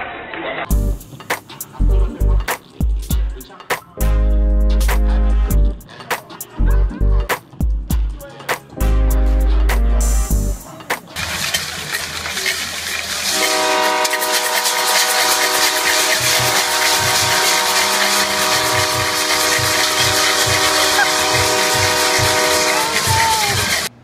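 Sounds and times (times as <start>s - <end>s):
thumping drums: 2.4s - 4.0s, 7.3s - 8.7s, 14.4s - 23.9s
marching band brass chord: 4.0s - 5.8s, 8.8s - 10.6s, 13.3s - 23.9s
stadium crowd cheering: 13.4s - 23.9s.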